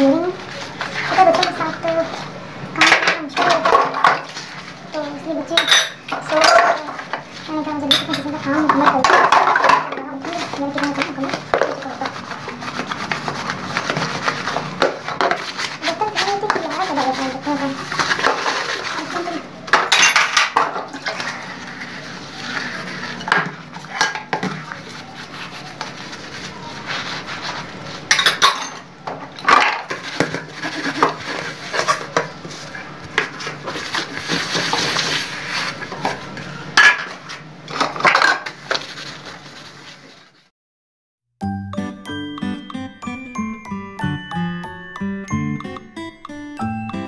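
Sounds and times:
scrubbing and scraping dishes: 0:00.0 - 0:40.3
metal pans clanking together: 0:05.5 - 0:07.1, 0:07.8 - 0:11.8, 0:19.7 - 0:21.4, 0:28.1 - 0:32.4.

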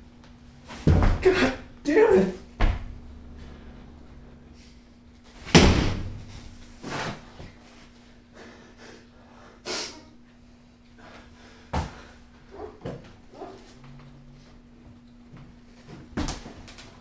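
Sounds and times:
knocks and bumps: 0:00.7 - 0:01.5.

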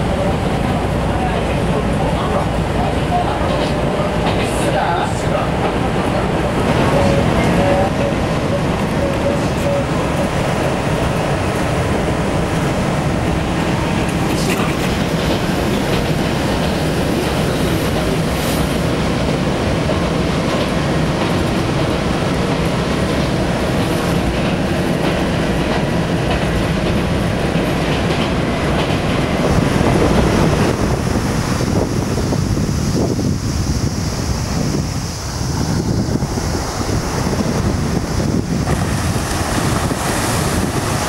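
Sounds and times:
train rumble with wheel clatter: 0:00.0 - 0:41.0
waves washing on a beach: 0:00.0 - 0:41.0
wind on microphone: 0:00.0 - 0:41.0.

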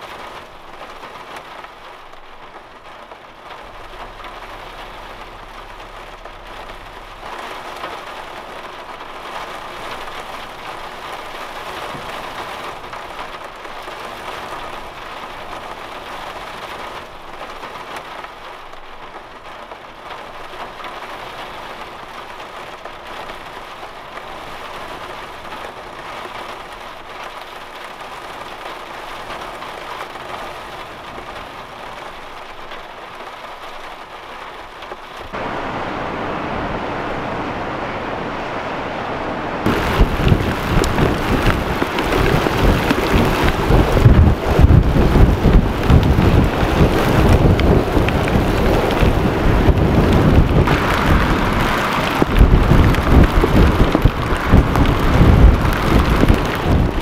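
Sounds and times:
heavy rain on van roof: 0:00.0 - 0:57.0.

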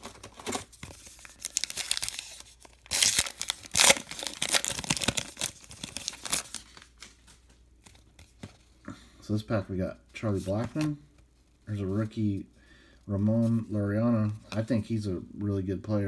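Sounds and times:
wrapper tearing: 0:00.0 - 0:06.8
wrapper crinkling: 0:00.0 - 0:07.4.

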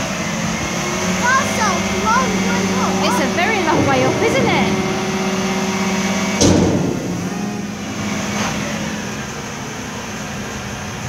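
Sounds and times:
truck engine and hydraulics humming: 0:00.0 - 0:11.0
loud metallic clunk: 0:03.6 - 0:08.6.

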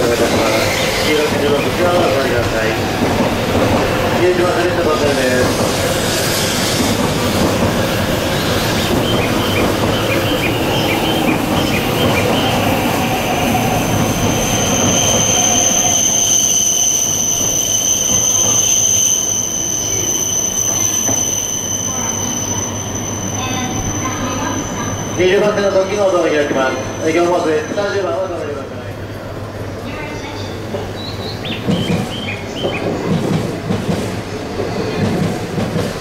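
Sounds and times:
train rumbling over rail joints: 0:00.0 - 0:36.0
wheel squeal: 0:13.8 - 0:25.9.

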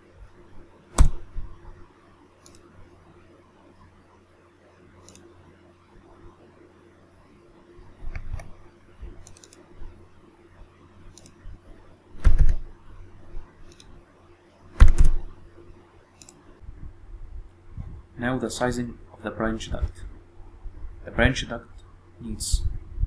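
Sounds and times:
low thumps: 0:01.0 - 0:01.6, 0:14.8 - 0:15.4
computer mouse clicks: 0:02.4 - 0:02.7, 0:05.0 - 0:05.3, 0:09.2 - 0:09.7, 0:11.1 - 0:11.4, 0:12.2 - 0:12.6, 0:13.6 - 0:14.0, 0:16.2 - 0:16.5
keyboard keystrokes: 0:12.2 - 0:12.6.

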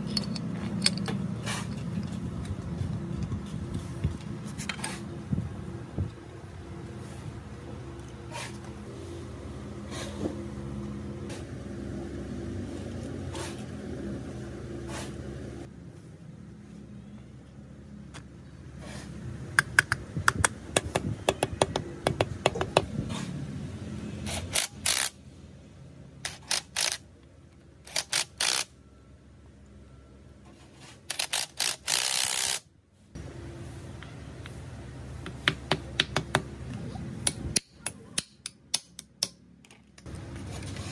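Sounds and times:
impact wrench hammering: 0:37.2 - 0:39.4.

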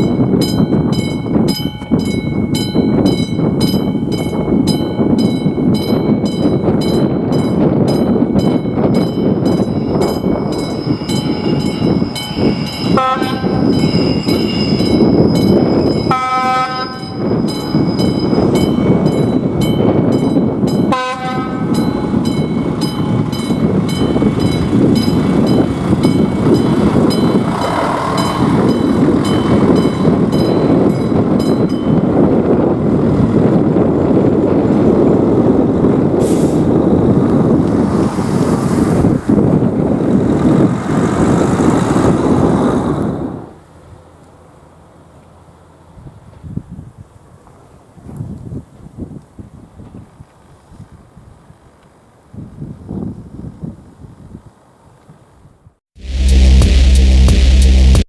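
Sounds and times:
train rumbling over crossing: 0:00.0 - 0:48.2
train horn: 0:12.9 - 0:13.7, 0:16.1 - 0:17.2, 0:20.9 - 0:21.8.

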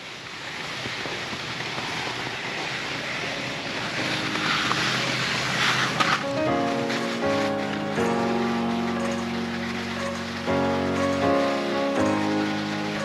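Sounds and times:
steady rushing noise: 0:00.0 - 0:13.0
quiet background music: 0:03.4 - 0:13.0.

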